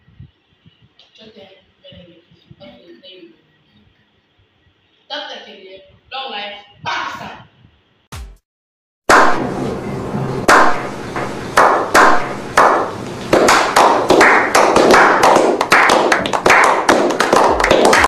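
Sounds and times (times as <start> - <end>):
group clapping: 9.1 - 9.4, 10.5 - 10.8, 11.6 - 18.0.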